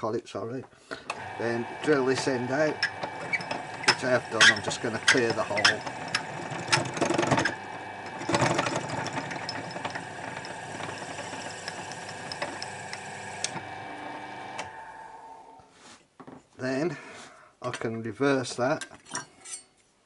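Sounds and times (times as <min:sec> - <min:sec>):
lathe motor hum: 0:01.1 - 0:15.6
drill bit cutting wood: 0:01.2 - 0:15.3.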